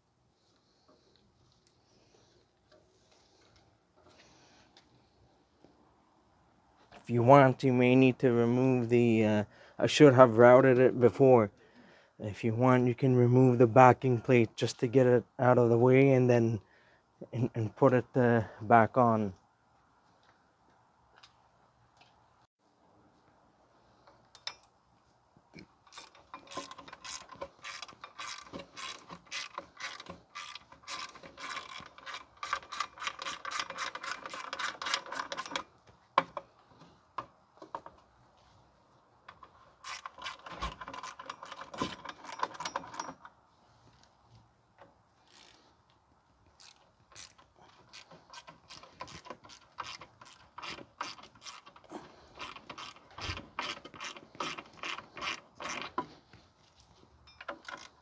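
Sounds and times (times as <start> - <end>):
ratchet wrench clicking: 25.9 - 35.6, 39.8 - 43.2, 45.3 - 45.6, 46.6 - 51.8, 52.4 - 55.9.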